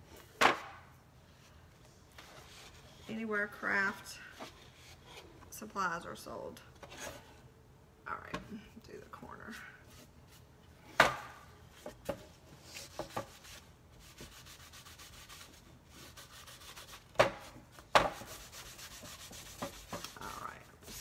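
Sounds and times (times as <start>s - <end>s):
wiping wooden tray: 12.8s - 21.0s.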